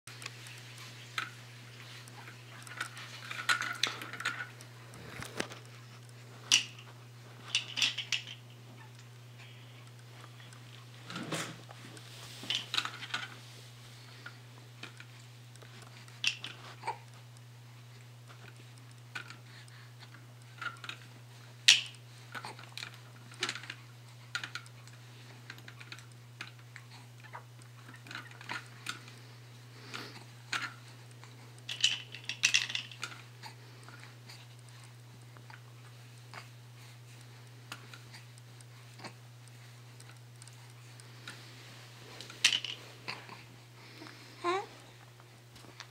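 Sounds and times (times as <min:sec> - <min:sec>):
plastic toys clicking and rattling: 0:00.1 - 0:05.8, 0:06.4 - 0:09.0, 0:12.4 - 0:13.4, 0:14.8 - 0:17.2, 0:18.3 - 0:29.2, 0:29.9 - 0:34.8, 0:42.2 - 0:43.4
steady low hum: 0:00.1 - 0:45.9.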